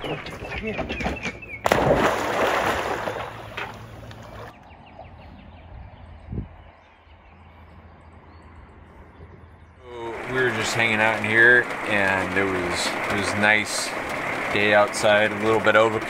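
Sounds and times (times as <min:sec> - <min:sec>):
dog splashing into water: 0:01.6 - 0:04.5
water lapping: 0:01.7 - 0:04.5, 0:09.9 - 0:16.0.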